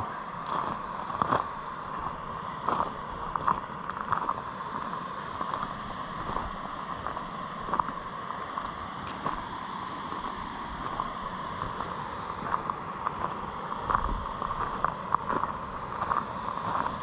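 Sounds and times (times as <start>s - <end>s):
steady rushing noise: 0.0s - 17.0s.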